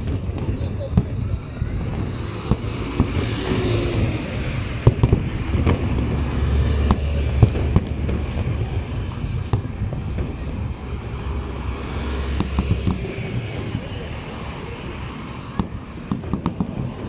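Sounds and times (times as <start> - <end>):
bus engine rumbling past: 0.0 - 17.0
fireworks banging: 0.0 - 17.0.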